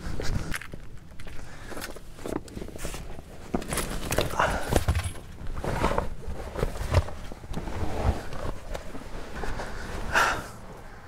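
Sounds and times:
rustling on inflatable bed: 0:05.4 - 0:10.3.

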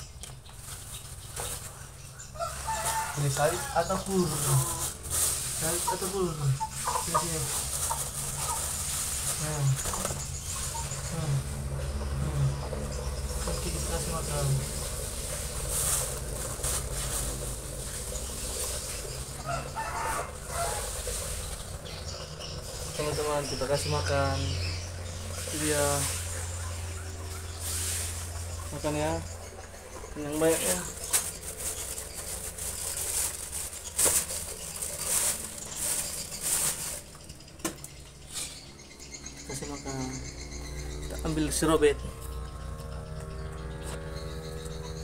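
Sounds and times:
rustle: 0:00.0 - 0:11.6, 0:13.3 - 0:29.4, 0:30.3 - 0:39.2
rooster calling: 0:02.3 - 0:12.7, 0:17.4 - 0:21.8.

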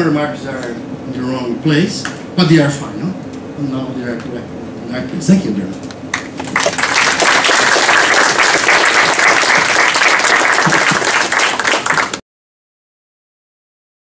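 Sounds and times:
audience applauding: 0:06.1 - 0:12.2.

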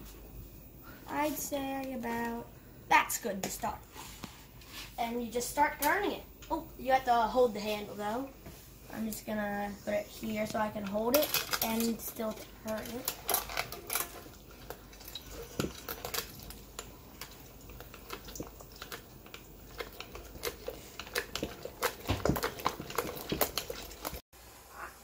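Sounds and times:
hand-cranked food mill scraping: 0:19.6 - 0:24.2.

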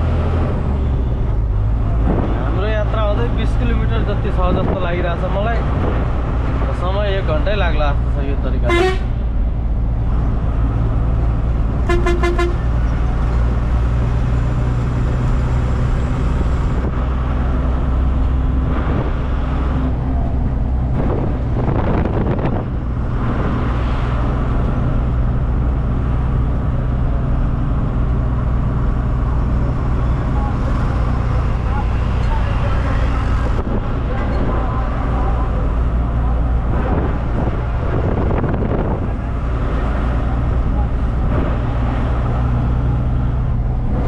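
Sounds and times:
diesel truck running: 0:00.0 - 0:44.0
truck horn blast: 0:08.7 - 0:09.2, 0:11.8 - 0:12.8.

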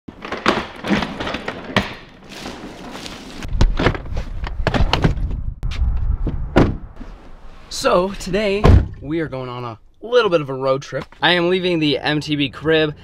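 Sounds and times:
suitcase knocks and thumps: 0:00.1 - 0:02.2, 0:06.3 - 0:06.8, 0:08.6 - 0:09.0.

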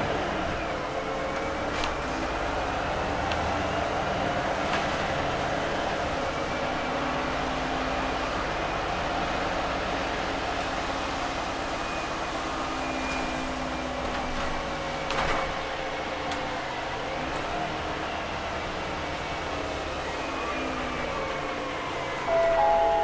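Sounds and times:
bus engine and drivetrain hum: 0:00.0 - 0:23.0
road noise: 0:00.0 - 0:23.0.

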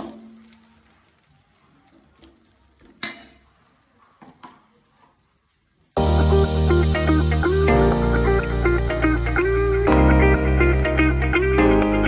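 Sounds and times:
steady bass line: 0:06.0 - 0:12.0.

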